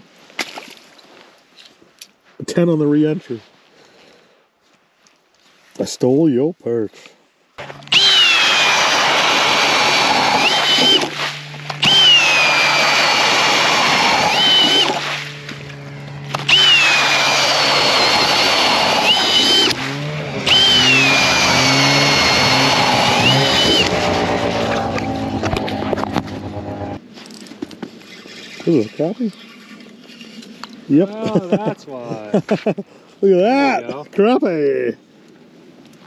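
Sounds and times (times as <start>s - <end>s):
cordless drill boring into ice: 7.8s - 26.7s.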